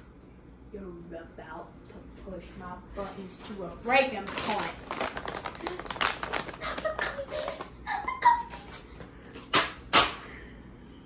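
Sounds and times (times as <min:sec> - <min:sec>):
loud sharp smacks: 0:09.5 - 0:10.2.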